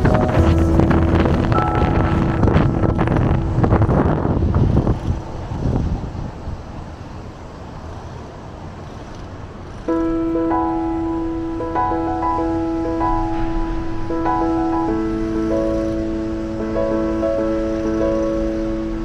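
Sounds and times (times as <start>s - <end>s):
music with bell-like tones: 0.0s - 4.4s, 9.9s - 19.0s
city traffic noise: 0.0s - 19.0s
wind buffeting microphone: 0.0s - 19.0s.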